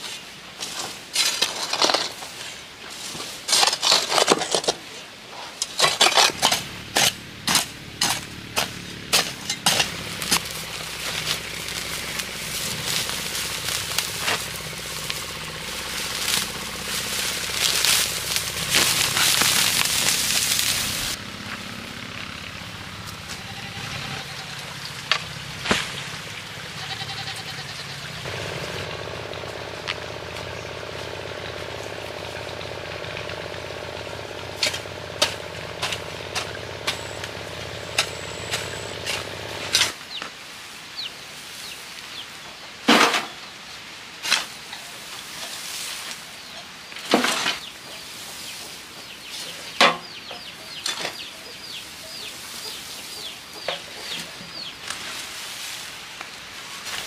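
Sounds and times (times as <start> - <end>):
hoe scraping stony ground: 0.0 - 22.1, 23.0 - 40.0, 47.0 - 49.7
birds chirping faintly: 8.7 - 40.3
steady low drone: 28.2 - 39.9.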